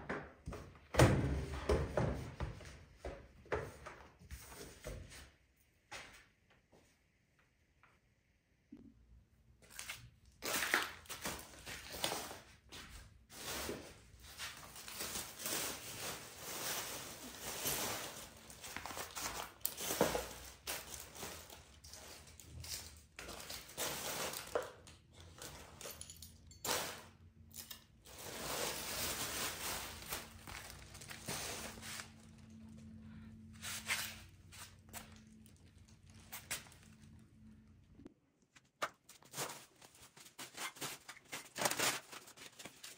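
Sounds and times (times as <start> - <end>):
plastic bag rustling and crinkling: 13.3 - 25.7, 28.0 - 32.8.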